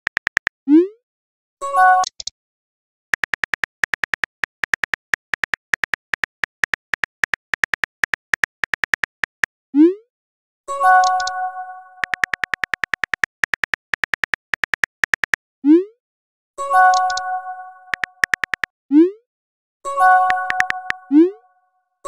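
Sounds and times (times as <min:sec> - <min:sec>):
phone keyboard clicks: 0:00.0 - 0:00.6, 0:03.2 - 0:09.5, 0:11.0 - 0:11.4, 0:12.0 - 0:15.4, 0:16.9 - 0:17.3, 0:17.9 - 0:18.7, 0:20.2 - 0:21.0
message alert chime: 0:20.1 - 0:21.4.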